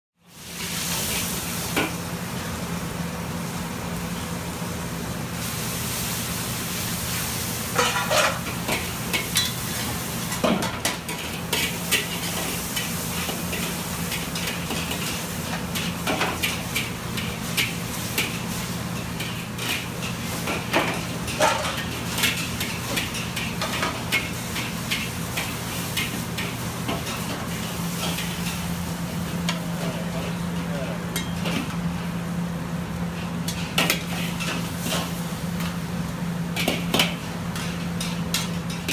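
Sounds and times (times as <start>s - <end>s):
food sizzling: 0.3s - 2.5s, 5.3s - 29.8s
utensils clanking and scraping wok: 7.7s - 32.0s, 33.1s - 35.8s, 36.5s - 38.9s.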